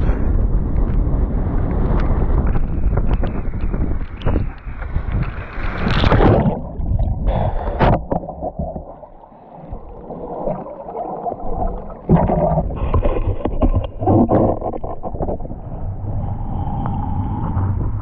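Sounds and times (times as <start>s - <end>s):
wind: 0.0s - 10.7s, 11.4s - 18.0s
muffled underwater gurgling: 2.2s - 18.0s
water splashing: 3.6s - 16.4s.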